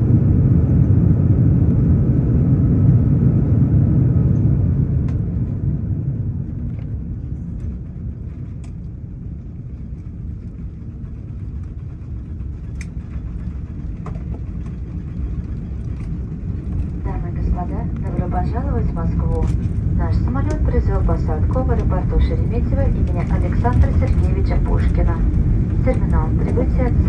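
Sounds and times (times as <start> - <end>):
engine and wheels rumbling: 0.0 - 27.0
faint clicks: 12.6 - 13.2.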